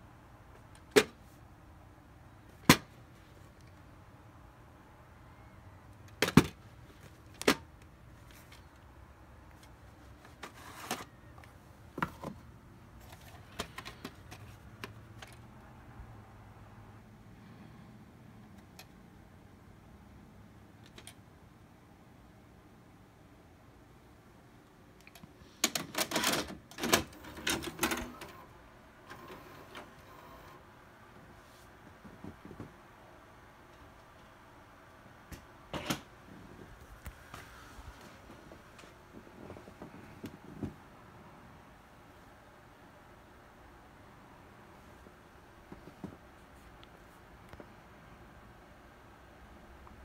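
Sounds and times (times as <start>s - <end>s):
plastic clicks and clunks: 6.1s - 7.7s, 13.0s - 15.4s
tape deck mechanical whir: 26.0s - 30.6s.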